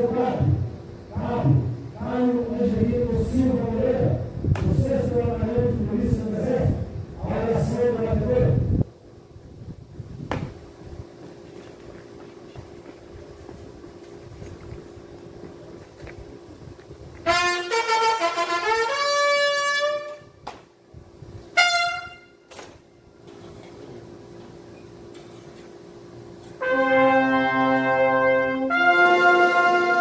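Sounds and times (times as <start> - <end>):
bugle call of rising notes: 17.2 - 20.3, 21.6 - 22.4, 26.6 - 30.0
brass instruments holding long chords: 17.2 - 20.4, 21.5 - 22.4, 26.6 - 30.0.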